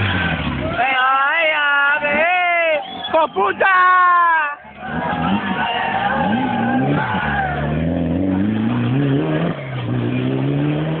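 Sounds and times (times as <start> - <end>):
rally car engine revving: 0.0 - 1.0, 4.7 - 11.0.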